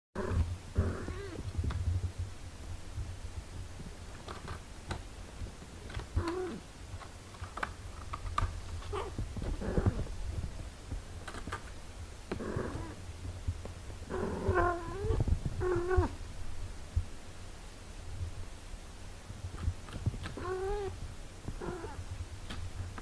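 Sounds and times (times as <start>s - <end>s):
cat purring: 0.2s - 2.3s, 5.4s - 6.7s, 8.7s - 11.7s, 12.3s - 16.3s, 19.8s - 23.0s.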